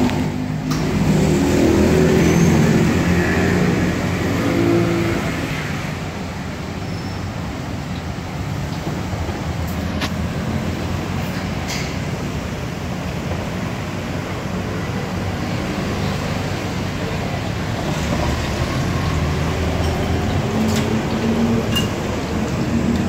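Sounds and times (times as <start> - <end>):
metal utensils clinking on wok: 19.8 - 22.6.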